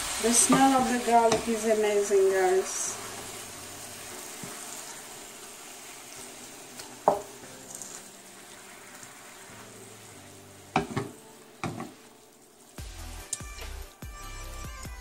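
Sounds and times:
meat sizzling in a pan: 0.0 - 15.0
wooden spoon knocking on pan: 0.4 - 1.6, 7.0 - 7.4, 10.7 - 12.0.

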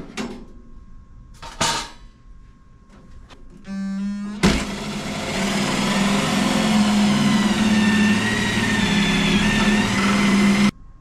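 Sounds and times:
cordless drill whining into sheet metal: 3.7 - 10.7.

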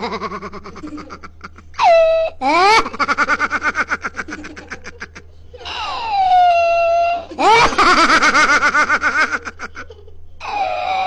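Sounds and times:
high-pitched laughter: 0.0 - 11.0.

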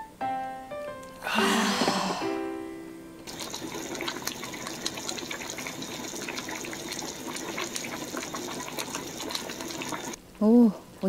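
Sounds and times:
broth bubbling with small pops: 3.2 - 10.2.

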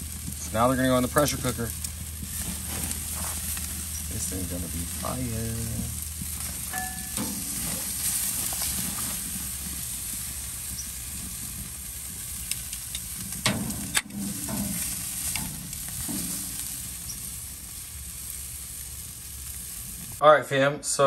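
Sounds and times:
meat sizzling on a grill: 0.0 - 20.2
tongs clicking on grill grate: 6.6 - 7.9, 12.4 - 17.2.

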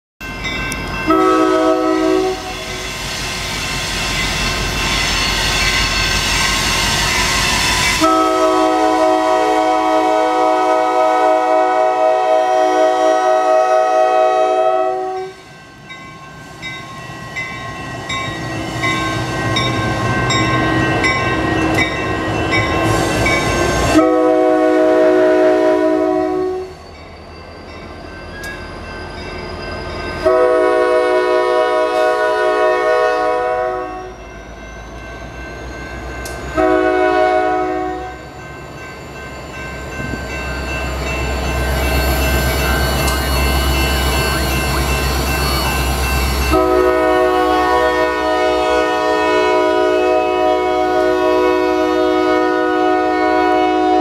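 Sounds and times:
crossing bell ringing: 0.2 - 54.0
locomotive horn blasts: 1.1 - 2.8, 7.8 - 15.4, 23.8 - 26.8, 30.2 - 34.2, 36.5 - 38.3, 46.5 - 54.0
locomotive engine: 35.6 - 48.6
train wheel clatter: 39.7 - 47.0.

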